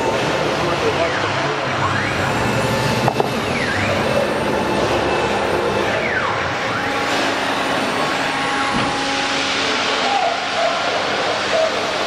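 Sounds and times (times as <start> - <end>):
machine whines: 0.0 - 12.0
wood router cutting board: 2.2 - 5.4.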